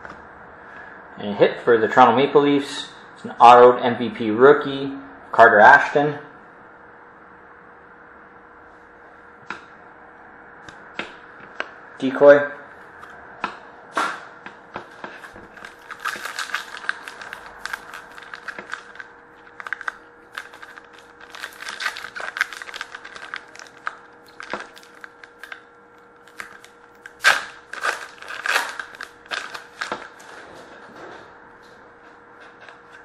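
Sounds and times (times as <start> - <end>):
cards rustling and clicking: 14.8 - 25.6, 26.3 - 30.3
card pack wrapper crinkling: 14.9 - 30.3.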